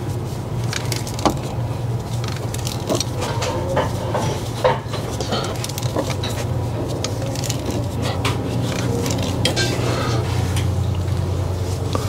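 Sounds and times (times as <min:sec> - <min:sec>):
metallic scraping and clicking: 0:00.7 - 0:10.8.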